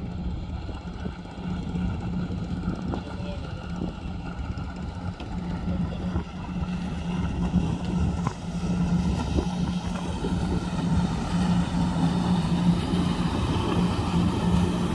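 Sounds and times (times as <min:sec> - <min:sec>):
motorboat engine humming: 0:00.0 - 0:14.9
water rushing: 0:00.0 - 0:14.9
wind noise: 0:00.0 - 0:14.9.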